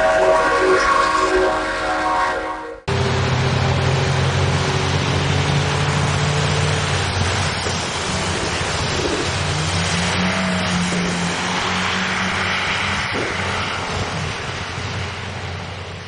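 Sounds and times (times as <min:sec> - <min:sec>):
train horn: 0:00.0 - 0:03.0
cars humming past: 0:02.8 - 0:16.0
rain and tyres on wet road: 0:02.9 - 0:16.0.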